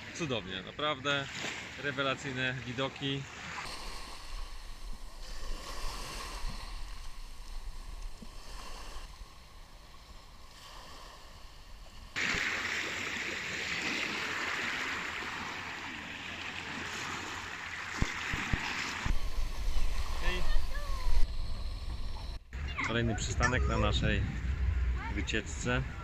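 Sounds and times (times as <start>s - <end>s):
waves washing on shore: 3.1s - 21.3s
wind noise on microphone: 18.0s - 26.0s.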